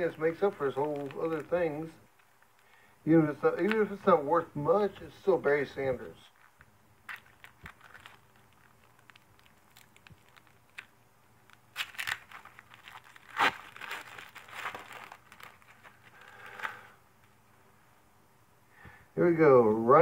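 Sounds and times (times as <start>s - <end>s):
foil wrapper tearing and crinkling: 0.0s - 2.9s, 6.3s - 16.9s.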